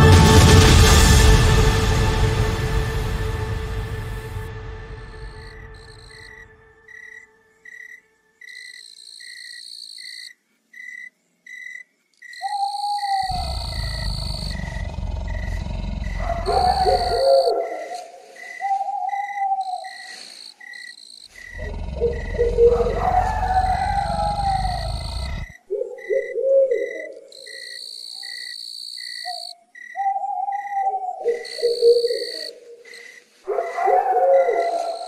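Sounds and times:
crickets chirping: 4.8s - 35.0s
insect trills: 5.2s - 35.0s
low hooting calls: 12.3s - 28.6s, 29.2s - 35.0s
low rumbling noise: 13.3s - 17.2s, 21.6s - 25.5s.

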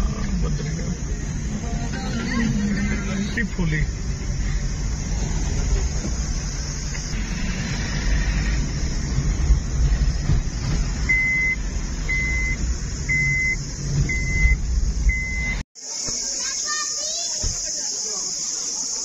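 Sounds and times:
engine and road rumble: 0.0s - 19.0s
high electronic beeps: 11.1s - 15.6s.

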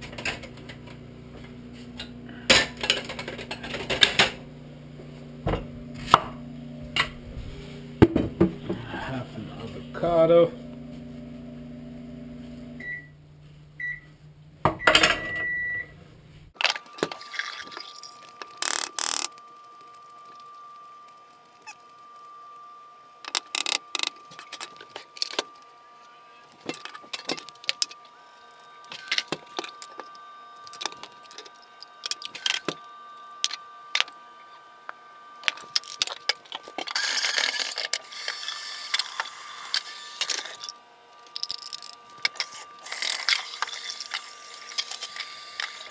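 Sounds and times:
microwave oven beeping: 8.0s - 13.2s, 13.8s - 16.0s
kitchen tap running: 17.0s - 19.2s.

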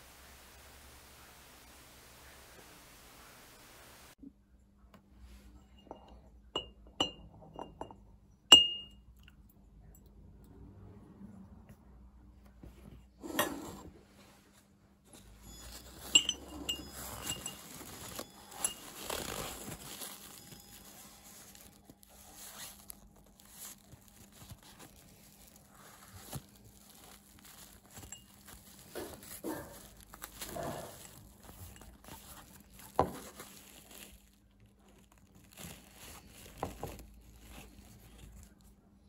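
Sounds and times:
glass and metal clinks: 5.7s - 9.0s, 15.2s - 21.7s
paper towel rustling and crumpling: 15.2s - 38.9s.

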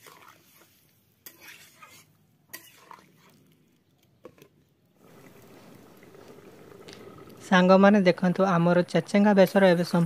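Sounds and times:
metal spatula scraping pot: 0.0s - 3.4s.

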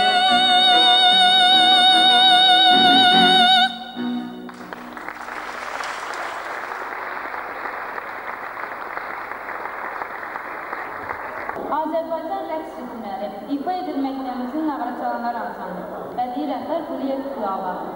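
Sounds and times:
woman singing with vibrato: 0.0s - 4.4s
musical accompaniment: 0.0s - 5.5s
audience applauding: 4.2s - 11.7s.

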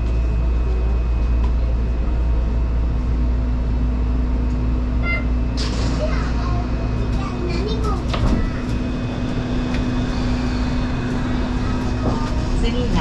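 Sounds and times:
low rumble of running train: 0.0s - 13.0s
steady hum: 0.0s - 13.0s.

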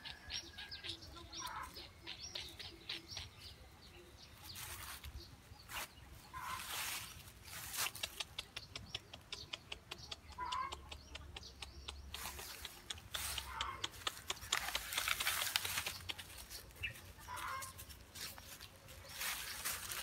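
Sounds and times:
dry leaves rustling under steps: 4.3s - 8.3s, 12.1s - 20.0s.

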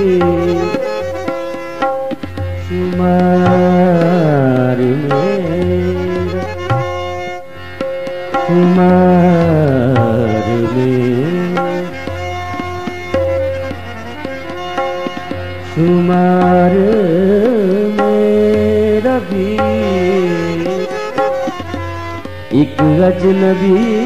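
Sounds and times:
man singing: 0.0s - 1.6s, 2.6s - 7.1s, 8.4s - 12.6s, 15.6s - 21.8s, 22.5s - 24.0s
harmonium chords: 0.0s - 24.0s
tabla strokes: 0.0s - 24.0s.

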